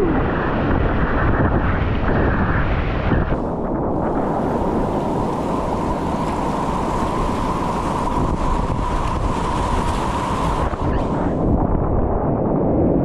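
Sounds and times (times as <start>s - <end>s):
whitewater rapids rushing: 4.0s - 11.5s.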